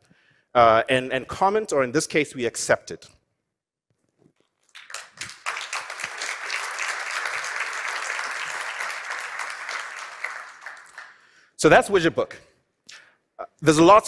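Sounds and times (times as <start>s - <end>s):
audience applauding: 4.7s - 11.3s.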